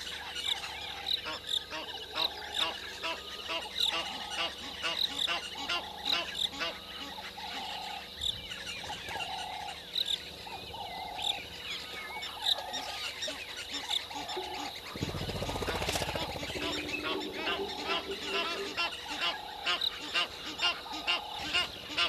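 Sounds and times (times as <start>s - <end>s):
birds chirping and trilling: 0.0s - 22.0s
bird honking call: 12.8s - 22.0s
low rumbling noise: 14.9s - 19.5s.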